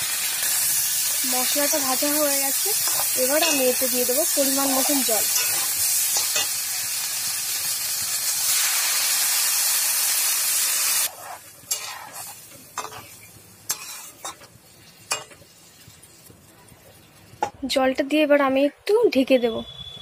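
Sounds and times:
oil sizzling loudly in a pan: 0.0s - 17.5s
spatula scraping and knocking pan: 2.8s - 4.0s, 11.1s - 15.5s.

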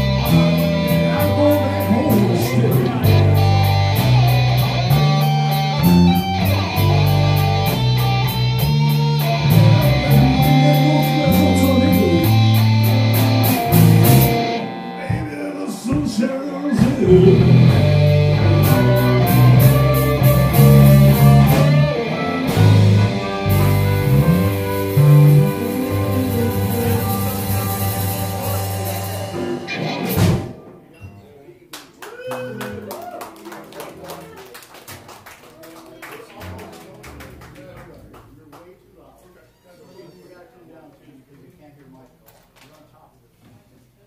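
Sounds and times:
bass: 0.0s - 30.6s
electric guitar: 0.0s - 30.7s
drums: 0.0s - 31.0s.

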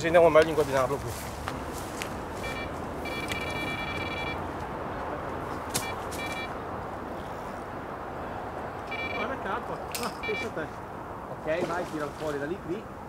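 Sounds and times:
bite alarm buzzing tone: 2.4s - 4.5s, 5.7s - 6.6s, 8.9s - 9.4s, 10.1s - 10.6s.

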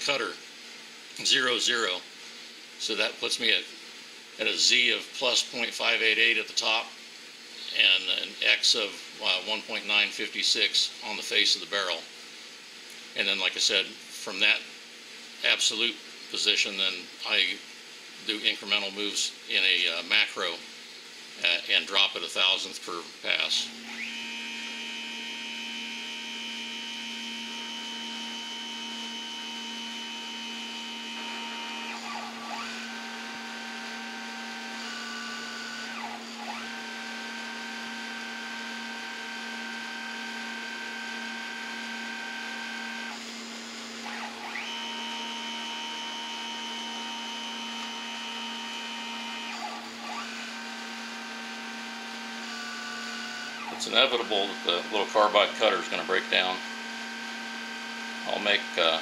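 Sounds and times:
mill motors whining: 18.1s - 59.0s.

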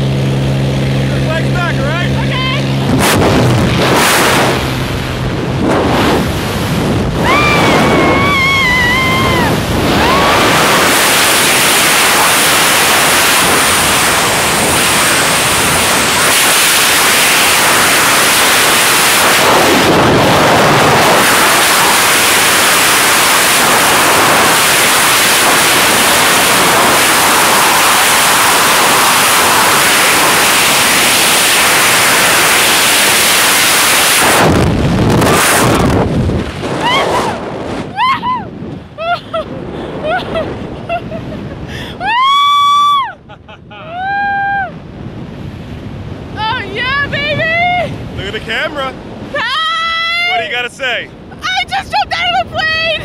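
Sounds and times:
wind blasting microphone: 0.0s - 53.0s
woman screaming: 7.2s - 10.3s, 36.8s - 39.2s, 42.0s - 43.2s, 43.8s - 44.8s, 49.4s - 50.4s.

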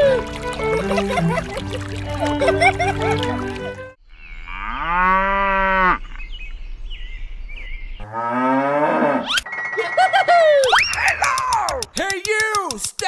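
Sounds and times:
cow mooing: 4.5s - 6.1s, 8.0s - 9.3s.

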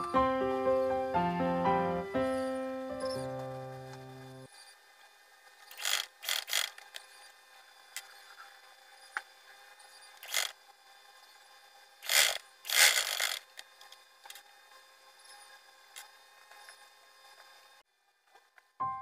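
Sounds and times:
sewing machine stitching: 5.7s - 6.9s, 10.2s - 10.5s, 12.0s - 13.5s.

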